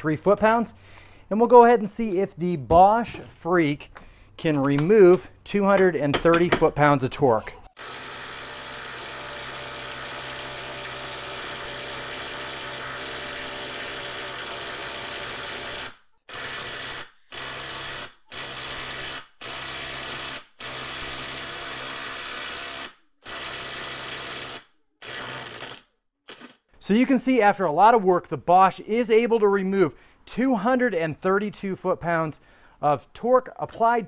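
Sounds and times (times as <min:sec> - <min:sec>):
impact driver hammering: 0:05.8 - 0:06.7.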